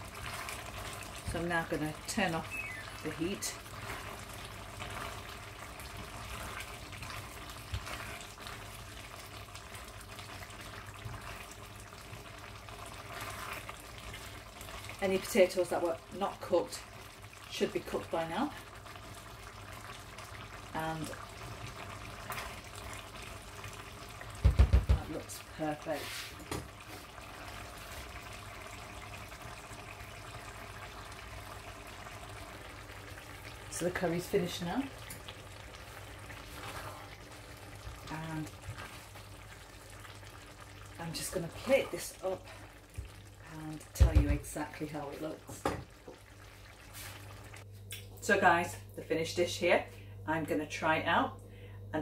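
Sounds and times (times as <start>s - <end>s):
curry bubbling in a pot: 0.0s - 47.7s.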